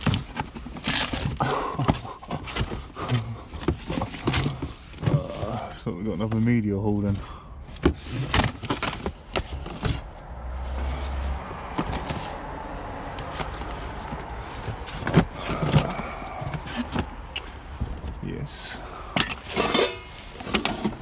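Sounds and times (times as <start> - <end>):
cardboard rustling: 0.0 - 5.8, 7.0 - 18.2
plastic disc cases clacking: 7.8 - 10.1.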